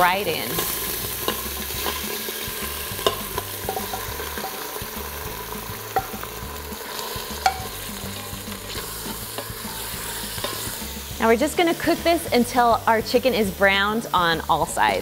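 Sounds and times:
chicken sizzling in hot oil: 0.0 - 15.0
wooden spoon knocking on pot: 3.0 - 4.6, 5.9 - 6.3, 7.4 - 7.8.

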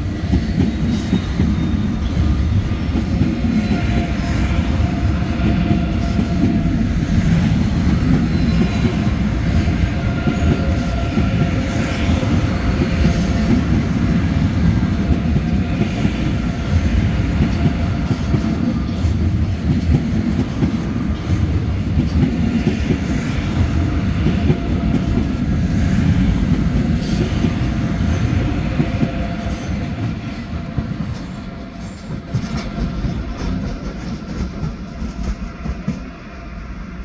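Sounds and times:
train wheels clattering over rail joints: 26.0 - 36.1.

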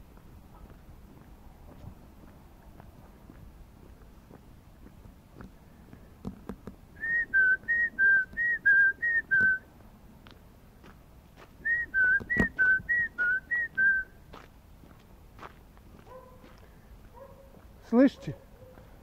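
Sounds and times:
man whistling two-pitch whistles: 7.0 - 9.6, 11.6 - 14.1.

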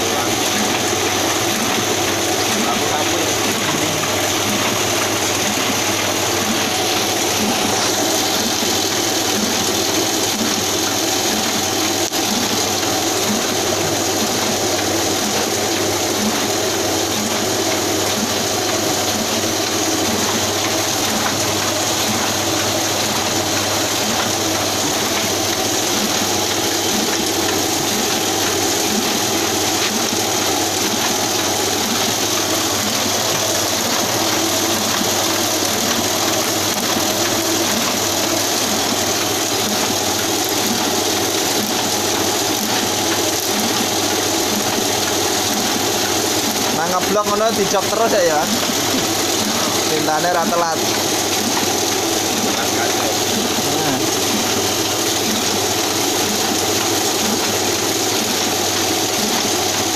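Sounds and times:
printing press clattering: 0.0 - 59.9.

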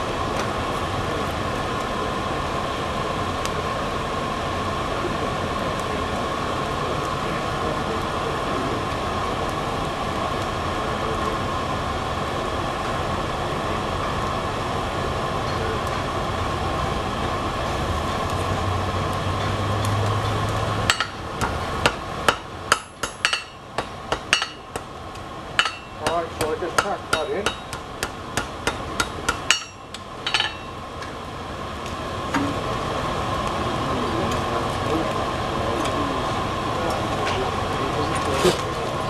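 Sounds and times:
hammer striking steel on anvil: 20.8 - 24.9, 25.6 - 30.8.

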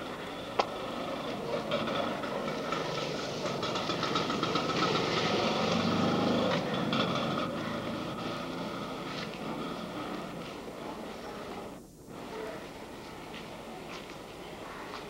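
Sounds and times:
vehicle engine passing by: 0.7 - 11.2.

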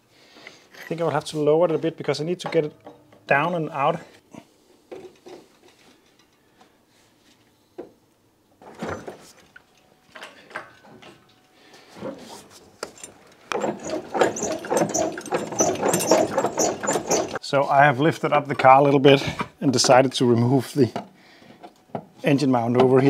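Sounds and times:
rapid metallic rattling: 12.8 - 17.4.

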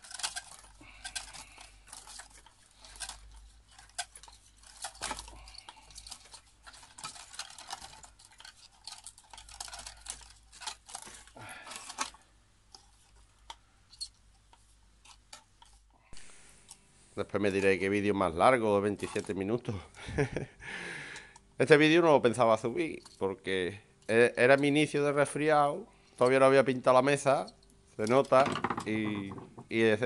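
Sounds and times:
scratching and scraping on ceramic: 0.0 - 15.9.

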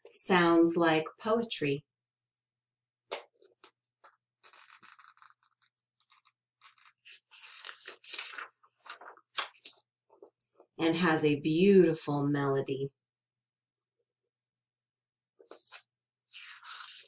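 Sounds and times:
page turning: 4.4 - 9.2.

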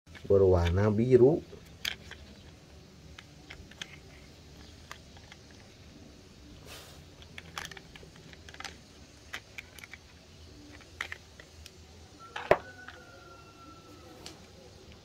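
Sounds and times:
plastic toys clicking and tapping: 0.1 - 5.9, 7.1 - 11.8.

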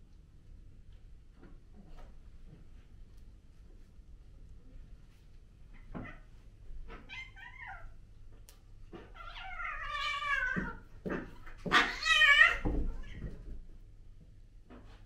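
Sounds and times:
cat yowling: 9.1 - 10.8, 11.6 - 13.3.

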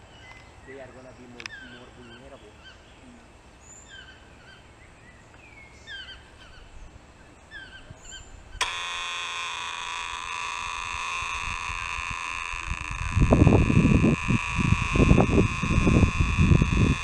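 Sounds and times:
small birds chirping: 0.0 - 8.7
cicadas buzzing: 0.0 - 17.0.

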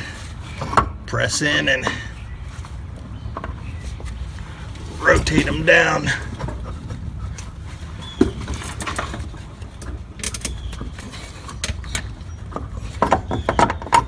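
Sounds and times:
metallic clicks and knocks: 8.7 - 14.0.

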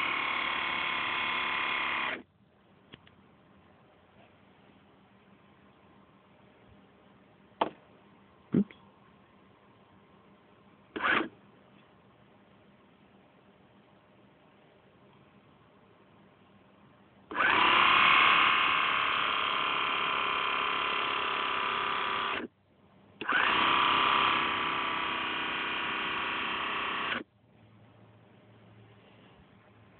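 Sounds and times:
small electric motor whirring: 0.0 - 2.2, 11.0 - 11.3, 17.3 - 22.5, 23.2 - 27.2.

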